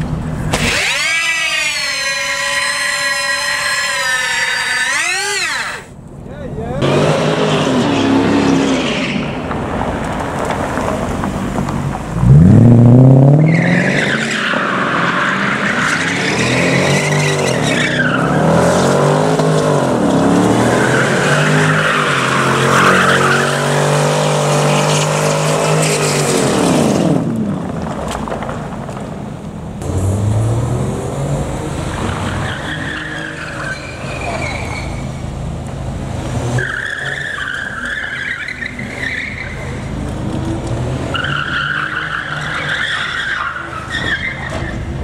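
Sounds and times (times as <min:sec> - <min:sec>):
tyres screeching: 0:00.5 - 0:06.0, 0:13.3 - 0:19.8, 0:20.5 - 0:26.5, 0:32.0 - 0:35.4, 0:36.6 - 0:40.0, 0:41.1 - 0:45.0
car engine revving: 0:06.7 - 0:28.4, 0:29.8 - 0:42.7.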